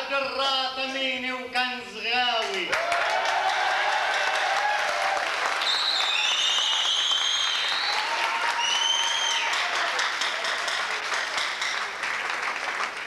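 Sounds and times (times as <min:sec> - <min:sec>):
audience applauding and cheering: 0:02.7 - 0:13.0.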